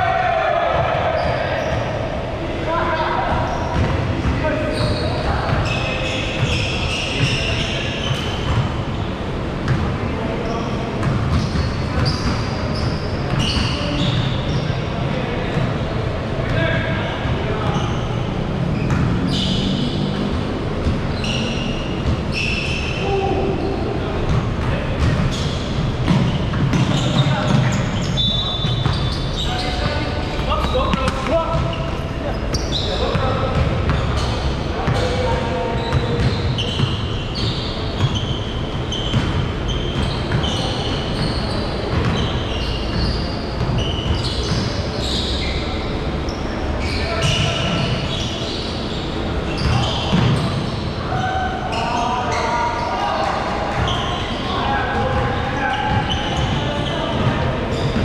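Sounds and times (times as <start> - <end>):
low hum of hall: 0.0 - 58.0
sneaker squeaks: 0.4 - 2.0, 2.8 - 58.0
basketballs bouncing on wooden floor: 3.7 - 5.8, 24.2 - 27.8, 28.6 - 37.1, 39.0 - 41.3, 41.9 - 42.3
basketball bouncing: 11.0 - 14.3, 24.3 - 27.8.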